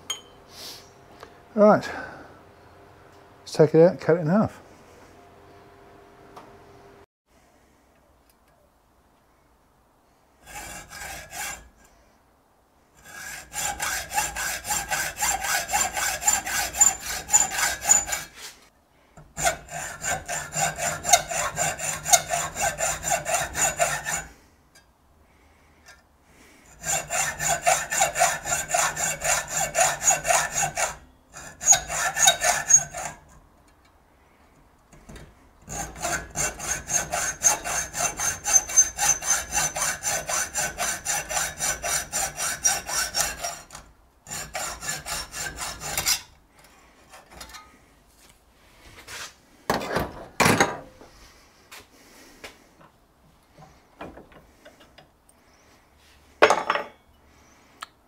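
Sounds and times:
hacksaw cutting metal: 0:10.4 - 0:11.8, 0:13.0 - 0:18.5, 0:19.2 - 0:24.4, 0:26.6 - 0:33.4, 0:35.0 - 0:46.4, 0:47.1 - 0:47.7.

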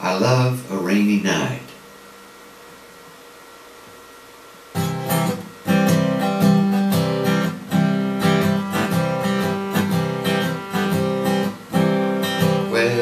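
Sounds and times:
acoustic guitar strumming chords: 0:04.7 - 0:13.0.

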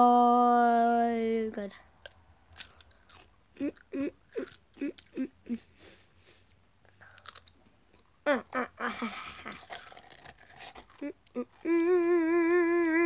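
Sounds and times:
person crunching crisps: 0:02.5 - 0:05.1, 0:07.0 - 0:08.2, 0:09.0 - 0:12.0
mouth sounds: 0:03.5 - 0:05.8.

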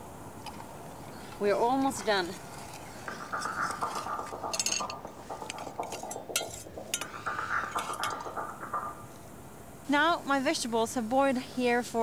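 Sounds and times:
metal utensils clinking against pot: 0:03.9 - 0:07.1.

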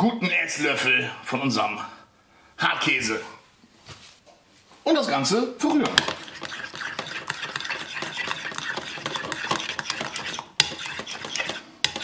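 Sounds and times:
spoon scraping sauce in bowl: 0:05.9 - 0:12.0.

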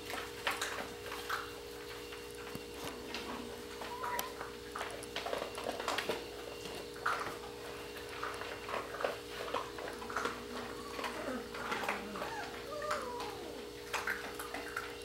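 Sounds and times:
puppy whine: 0:03.8 - 0:04.5, 0:09.4 - 0:14.9
puppies squeaking and yipping: 0:10.0 - 0:14.7.

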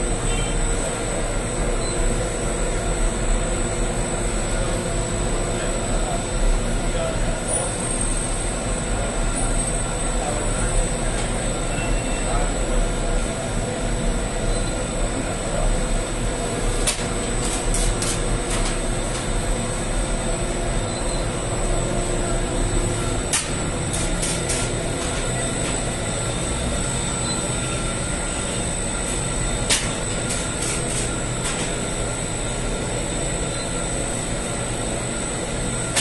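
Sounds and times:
machine motor hum: 0:12.5 - 0:35.9.

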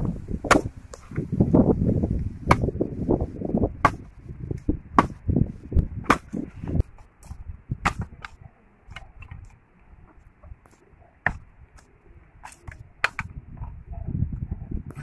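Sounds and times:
bamboo poles knocking: 0:02.4 - 0:02.8, 0:05.0 - 0:05.2, 0:09.2 - 0:13.3.

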